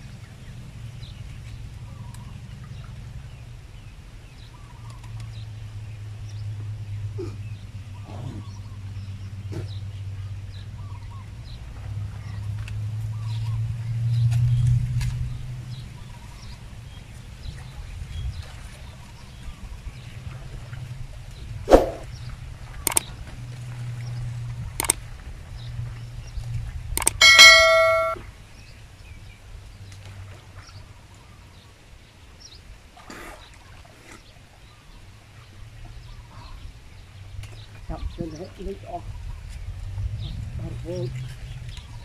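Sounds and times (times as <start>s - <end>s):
low steady hum: 20.6s - 28.2s
sharp clicks: 22.9s - 23.1s, 24.8s - 25.0s, 27.0s - 28.2s
bell-like ding: 27.1s - 28.2s.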